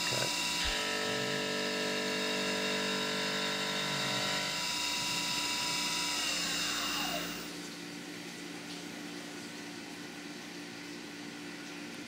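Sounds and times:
milling machine machining hum: 0:00.0 - 0:08.3.

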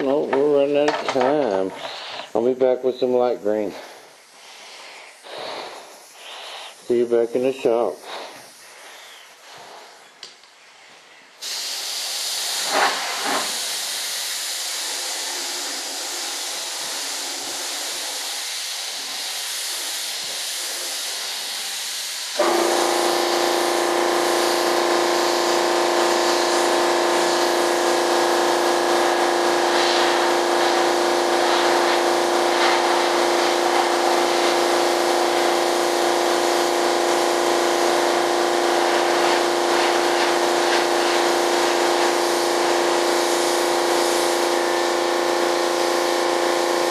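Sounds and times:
compressed air hissing: 0:00.0 - 0:46.9
air compressor motor humming: 0:12.4 - 0:46.9.

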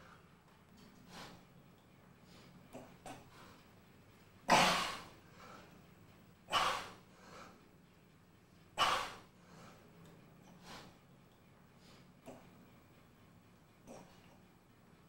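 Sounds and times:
soft breathing: 0:00.0 - 0:01.6, 0:02.2 - 0:03.9, 0:05.2 - 0:07.8, 0:08.5 - 0:12.8.

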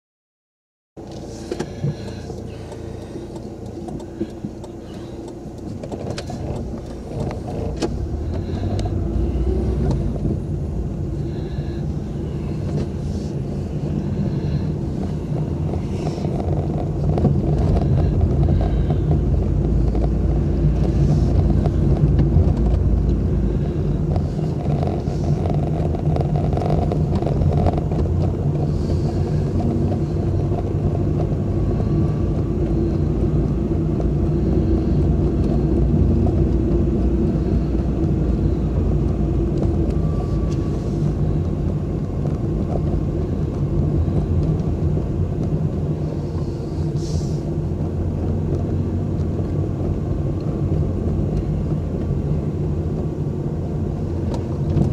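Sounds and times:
car engine and road noise: 0:01.0 - 0:54.9.

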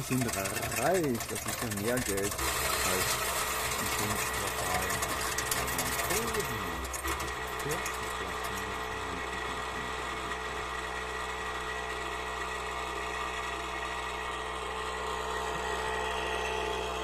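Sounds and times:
coin counting machine whirring: 0:00.0 - 0:12.0.

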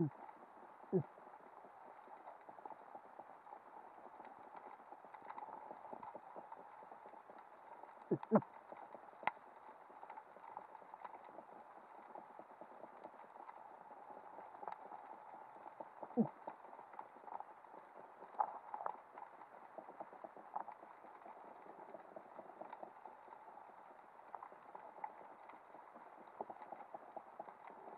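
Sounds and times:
underwater crackling and hiss: 0:00.0 - 0:27.9
person making throat calls: 0:08.1 - 0:08.4.

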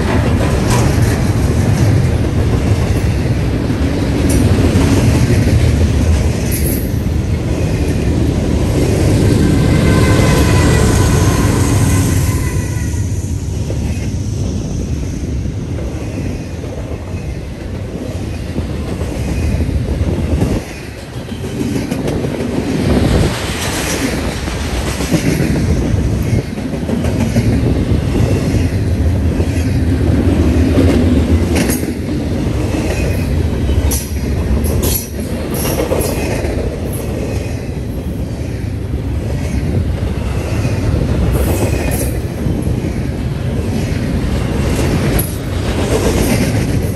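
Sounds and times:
train wheels rumbling on rail: 0:00.0 - 0:46.9.

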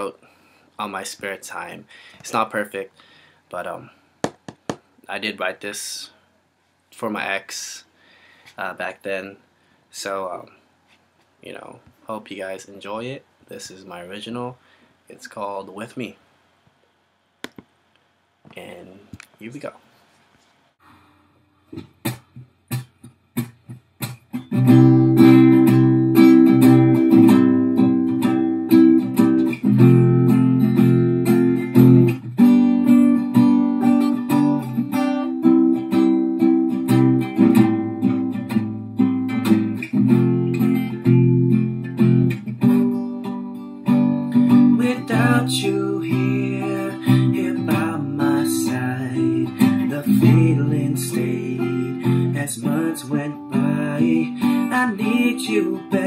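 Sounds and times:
acoustic guitar picking and strumming: 0:21.7 - 0:56.0.

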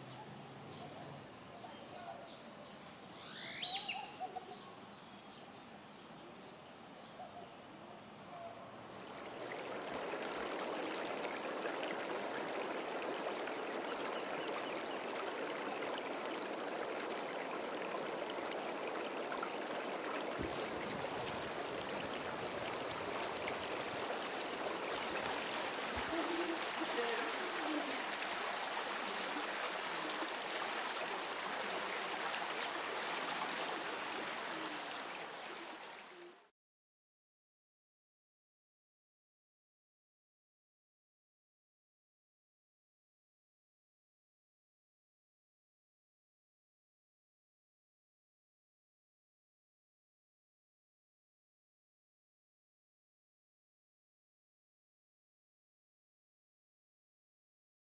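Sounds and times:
water running in stone ditch: 0:09.0 - 0:36.1.

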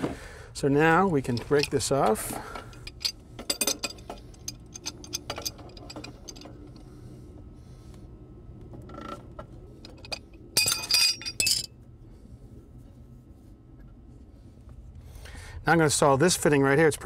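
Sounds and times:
metal clinking and rattling: 0:01.2 - 0:06.9, 0:09.8 - 0:11.7.

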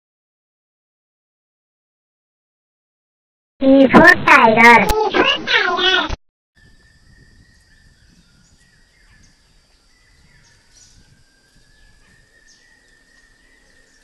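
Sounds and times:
birds chirping: 0:06.6 - 0:14.0
insect drone: 0:06.6 - 0:14.0.

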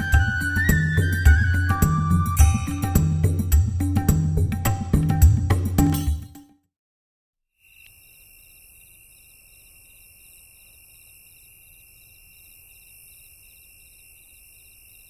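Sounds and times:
music: 0:00.0 - 0:06.7
high insect trill: 0:07.6 - 0:15.0
insects chirping: 0:07.6 - 0:15.0.

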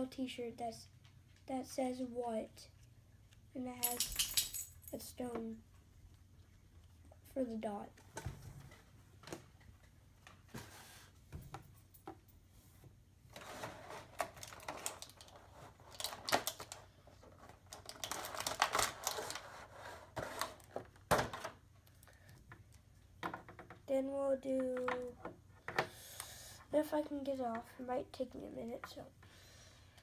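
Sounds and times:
plastic bag crinkling: 0:13.4 - 0:20.7.

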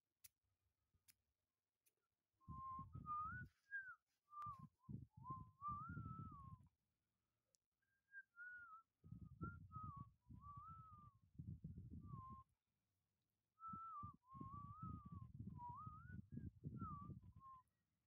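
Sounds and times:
person whistling a tune: 0:02.4 - 0:06.6, 0:07.8 - 0:11.1, 0:11.9 - 0:12.5, 0:13.6 - 0:17.7.

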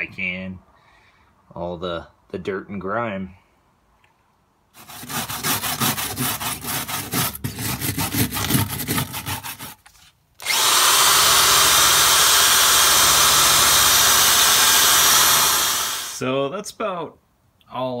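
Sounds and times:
drill wire brush scrubbing metal: 0:10.4 - 0:16.2.

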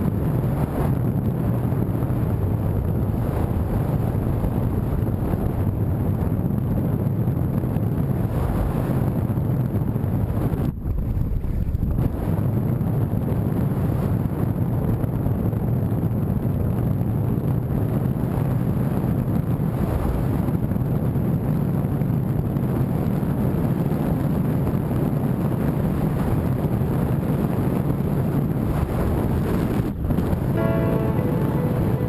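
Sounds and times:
wind buffeting microphone: 0:00.0 - 0:30.6.

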